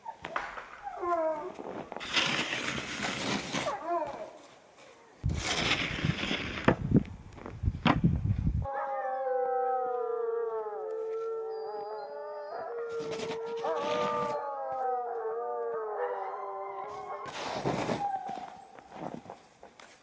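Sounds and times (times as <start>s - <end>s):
snow shovel scraping snow: 1.7s - 3.9s, 5.2s - 6.7s, 13.0s - 14.4s, 17.2s - 19.3s
dogs howling together: 8.7s - 17.3s.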